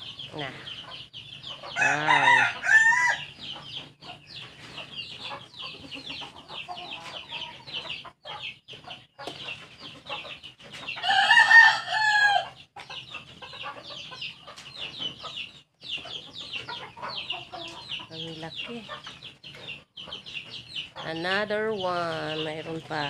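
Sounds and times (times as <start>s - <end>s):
chicks cheeping: 0.0s - 23.0s
rooster crowing: 1.8s - 3.3s, 11.0s - 12.6s.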